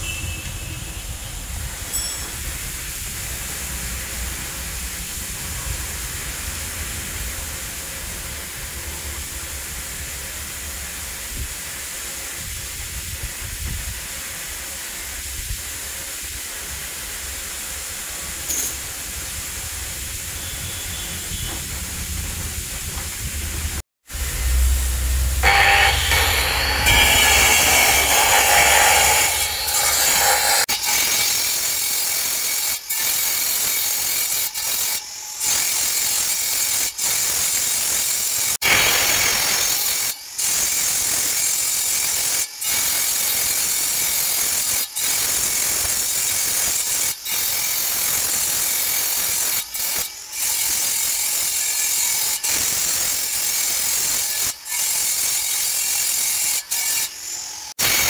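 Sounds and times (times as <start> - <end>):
angle grinder cutting stone: 24.2 - 58.0.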